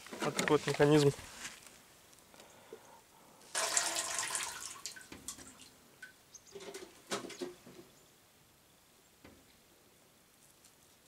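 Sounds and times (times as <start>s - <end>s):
water sloshing: 3.5s - 7.6s
water splash and pour: 3.5s - 7.6s.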